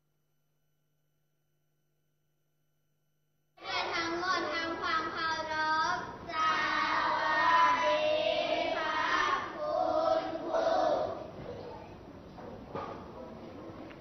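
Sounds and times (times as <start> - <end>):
children chanting in unison: 3.6 - 11.3.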